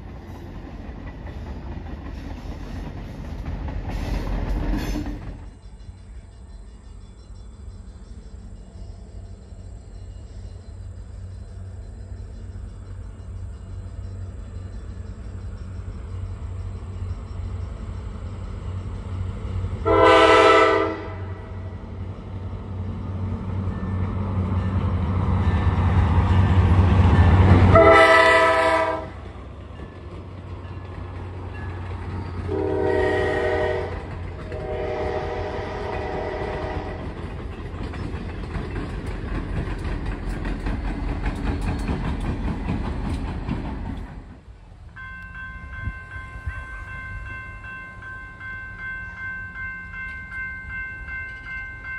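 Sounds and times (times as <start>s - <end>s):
diesel locomotive engine rumble: 0.0s - 51.9s
train noise: 0.0s - 51.9s
train air horn blasts: 19.8s - 21.8s, 27.6s - 29.3s, 32.5s - 37.1s.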